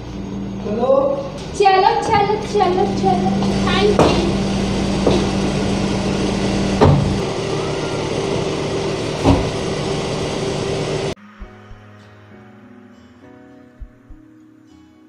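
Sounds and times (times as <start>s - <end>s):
car engine idling: 0.0s - 11.2s
car door shutting: 3.3s - 10.8s.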